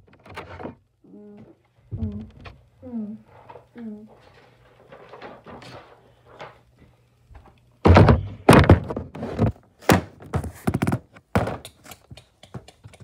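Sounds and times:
handling thumps and scrapes: 7.8 - 11.8.

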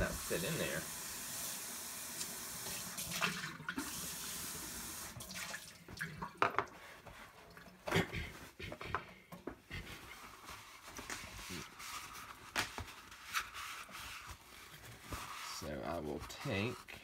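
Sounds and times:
faucet running into metal sink: 0.0 - 6.2.

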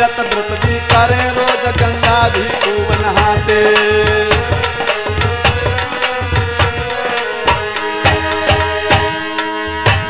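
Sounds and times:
hand drum beat: 0.0 - 10.0.

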